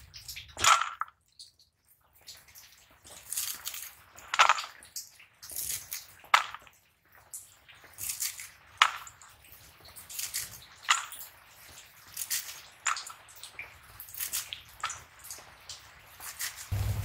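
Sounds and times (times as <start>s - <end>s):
leaves rustling: 16.2s - 17.0s.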